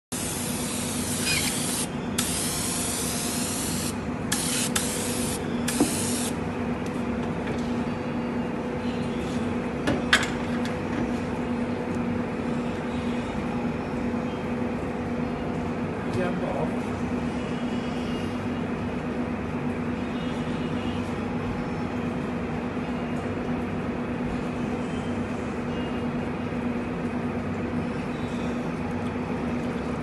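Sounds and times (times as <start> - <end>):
aerosol spray hissing: 0.1 - 6.3.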